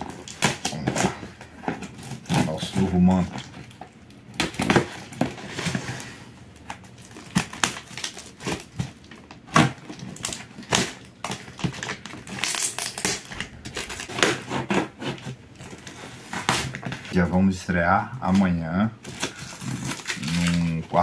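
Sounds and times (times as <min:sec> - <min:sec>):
cardboard and tape crunching: 0:00.0 - 0:17.6, 0:18.2 - 0:21.0
knife cutting cardboard: 0:12.4 - 0:17.0.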